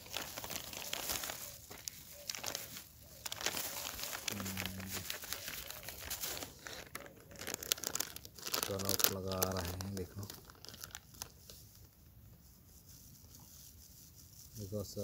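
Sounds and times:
plastic bags crinkling: 0.0s - 12.0s.

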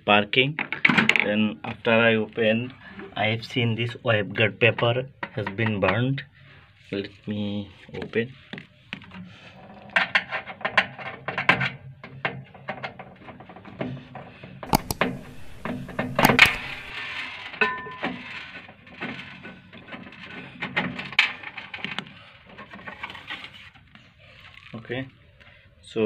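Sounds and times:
screwdriver turning screw: 14.7s - 16.9s
steady low hum: 14.7s - 16.9s.

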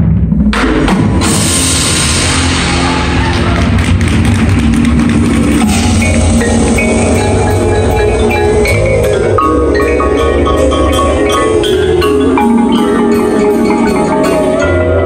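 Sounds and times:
low electric bass notes: 0.0s - 15.0s
marimbas and vibraphones: 4.6s - 15.0s.

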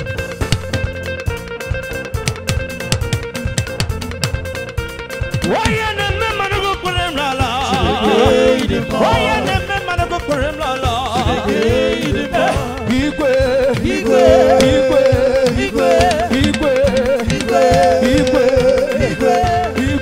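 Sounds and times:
steady drum beat: 2.1s - 20.0s
person singing: 5.4s - 20.0s.

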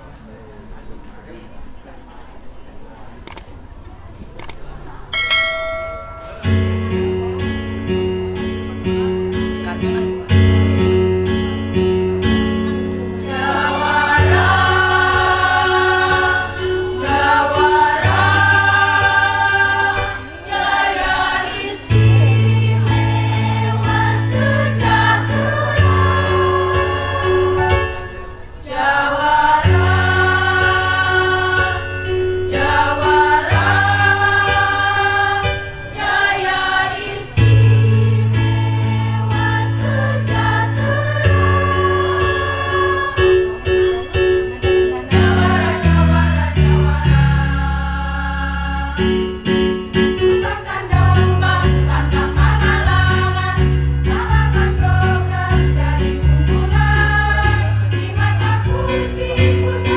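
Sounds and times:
held low accompaniment notes: 5.2s - 59.9s
women's choir singing: 13.0s - 44.0s, 44.9s - 59.9s.

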